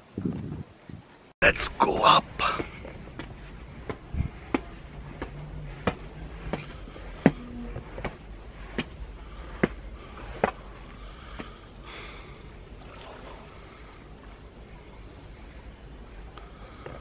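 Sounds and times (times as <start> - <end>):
low steady rumble: 2.3 - 16.9
footsteps walking: 2.4 - 11.6.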